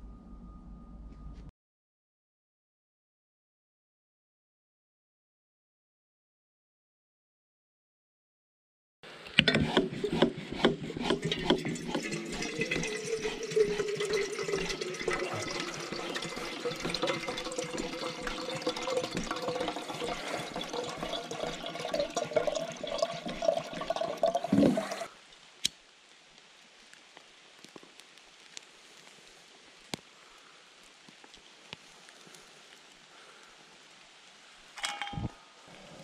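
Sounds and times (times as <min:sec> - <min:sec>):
water pouring into metal kettle: 0:09.9 - 0:25.1.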